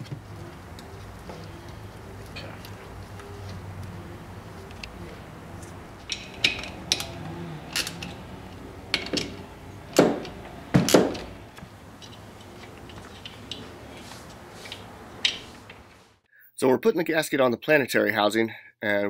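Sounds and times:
metal parts clinking and knocking: 2.2s - 15.9s.

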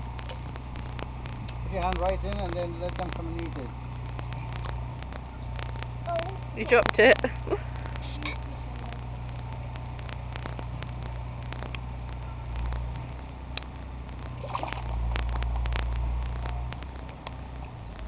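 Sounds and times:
low rumble: 0.0s - 18.0s
pond water sloshing: 14.3s - 15.6s
fish splashing at surface: 14.4s - 15.2s.

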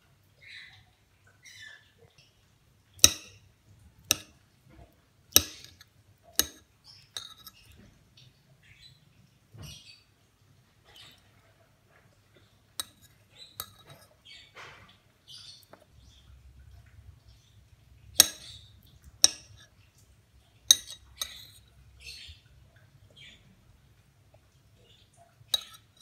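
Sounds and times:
spoon clinking on ceramic plate: 3.0s - 3.4s, 4.1s - 4.3s, 5.4s - 7.8s, 12.8s - 14.1s, 19.2s - 19.6s, 20.7s - 21.6s, 25.6s - 26.0s.

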